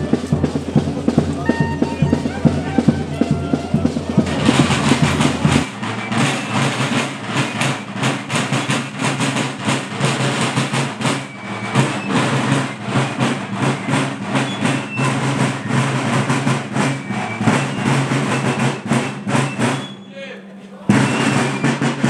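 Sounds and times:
low held brass notes: 0:00.0 - 0:05.5
drums beating march rhythm: 0:00.0 - 0:22.0.

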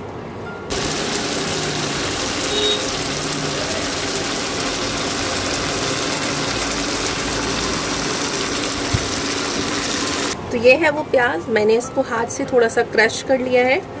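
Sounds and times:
food sizzling in a pan: 0:00.7 - 0:10.4.

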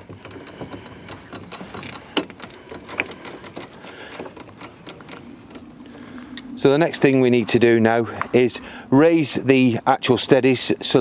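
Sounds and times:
winding mechanism clicking: 0:00.0 - 0:06.1.

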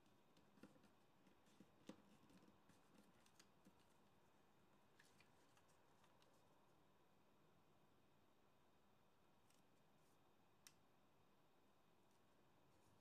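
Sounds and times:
paper rustling and crinkling: 0:00.0 - 0:04.1, 0:04.8 - 0:06.5.

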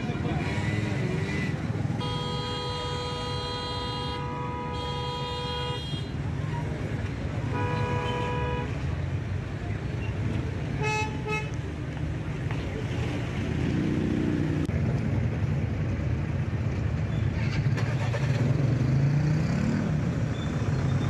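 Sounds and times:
idling traffic rumble: 0:00.0 - 0:21.0
car horns honking: 0:01.2 - 0:06.2, 0:07.4 - 0:08.9, 0:10.7 - 0:11.6.

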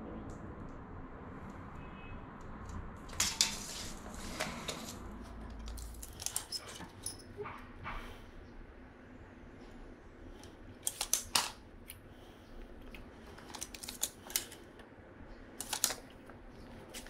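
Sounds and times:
sharp clicks and metallic clinks: 0:05.5 - 0:07.7.

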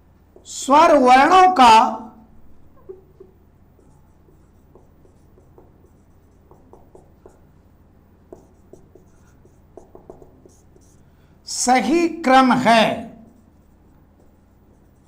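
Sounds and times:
low steady hum: 0:00.0 - 0:15.0
marker pen writing on whiteboard: 0:02.5 - 0:11.3, 0:13.2 - 0:15.0.

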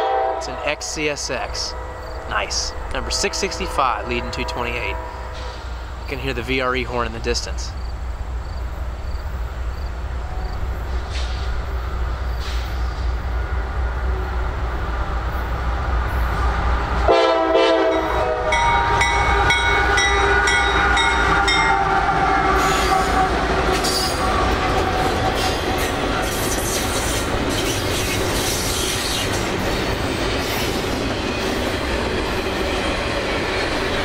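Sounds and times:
train horn chord: 0:00.0 - 0:00.9, 0:01.5 - 0:05.8, 0:17.1 - 0:24.2
diesel freight train rumbling past: 0:00.0 - 0:34.0
high sustained ringing tones: 0:01.6 - 0:05.6, 0:18.5 - 0:22.0.

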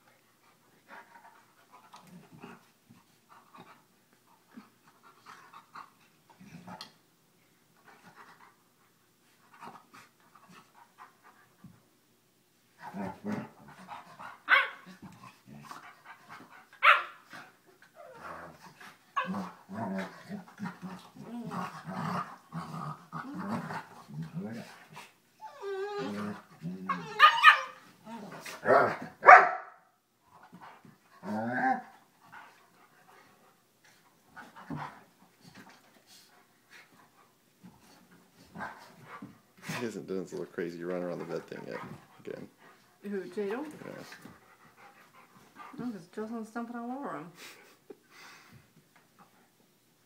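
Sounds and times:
dog play growls: 0:00.5 - 0:07.0, 0:12.7 - 0:29.2, 0:30.3 - 0:40.0, 0:40.9 - 0:45.9
dog yips: 0:26.9 - 0:27.8
dogs panting: 0:32.1 - 0:46.3.

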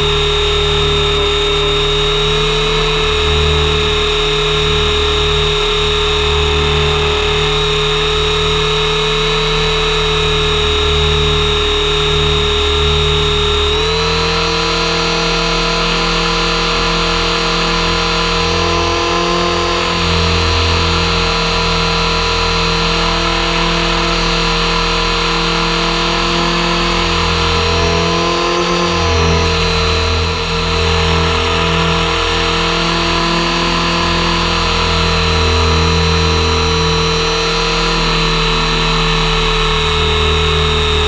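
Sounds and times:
rc helicopter rotor whine: 0:00.0 - 0:41.0.

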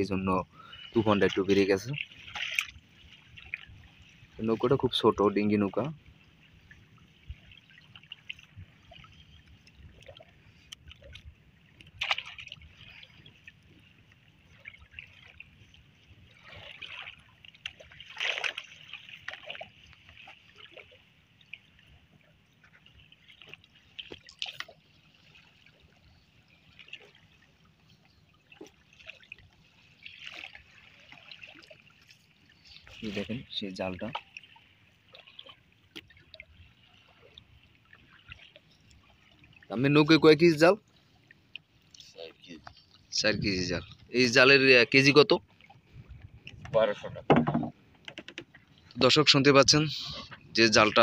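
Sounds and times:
water splashing off fishing net: 0:01.2 - 0:02.8, 0:11.9 - 0:13.1, 0:16.4 - 0:20.9.

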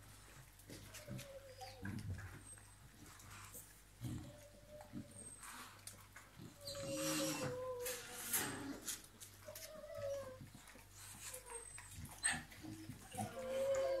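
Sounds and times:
puppy whimpering: 0:00.8 - 0:02.8, 0:04.0 - 0:05.5, 0:06.4 - 0:08.7, 0:09.3 - 0:14.0.

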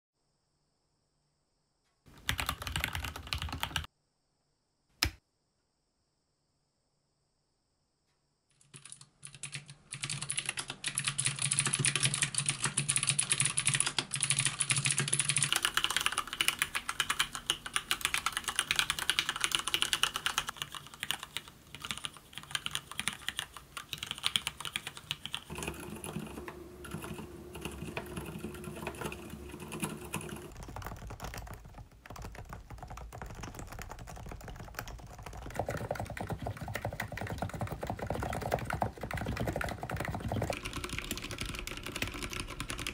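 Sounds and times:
fast typing on keyboards: 0:02.1 - 0:03.9, 0:08.6 - 0:42.9.

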